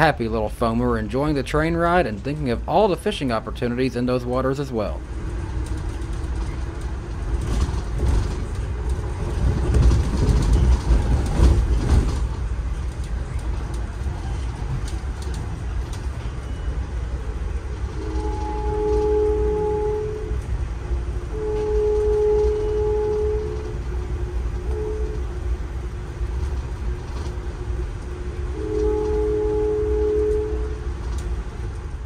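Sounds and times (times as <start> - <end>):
train car rumbling at speed: 0.0 - 32.0
wheels clicking over track: 5.3 - 16.8.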